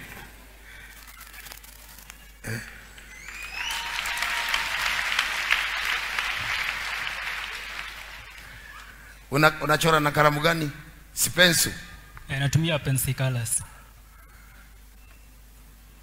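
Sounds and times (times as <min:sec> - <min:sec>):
crowd applauding: 0:02.9 - 0:09.0
person whooping: 0:03.1 - 0:05.1.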